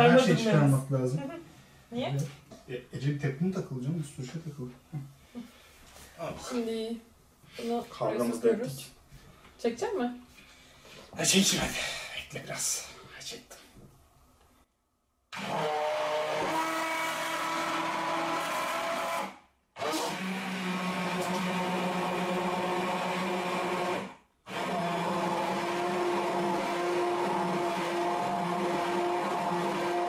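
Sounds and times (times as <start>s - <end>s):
electric hand blender running: 15.3s - 30.0s.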